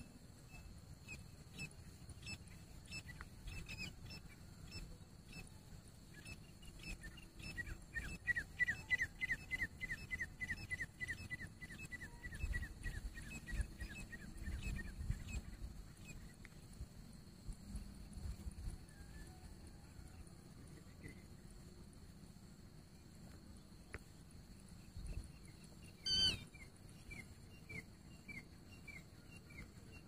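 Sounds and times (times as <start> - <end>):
francolin calling: 6.2 - 16.4, 25.4 - 30.0.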